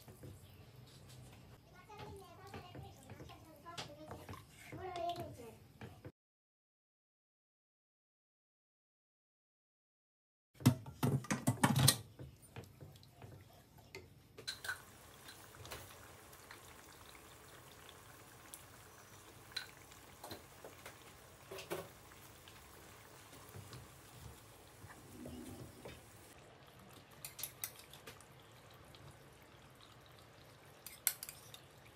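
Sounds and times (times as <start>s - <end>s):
curry simmering with soft pops: 0.0s - 6.1s, 11.4s - 31.9s
spoon scraping a pan: 30.8s - 31.7s.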